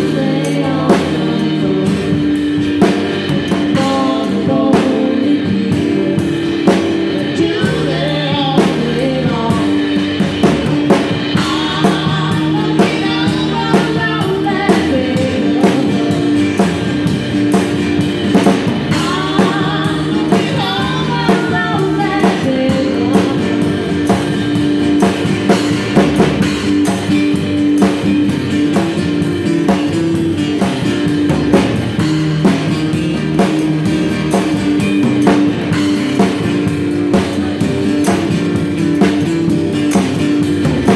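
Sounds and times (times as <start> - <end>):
woman singing lead: 0.0 - 17.2, 18.4 - 25.6
drums and cymbals beat: 0.0 - 40.9
live band playing: 0.0 - 40.9.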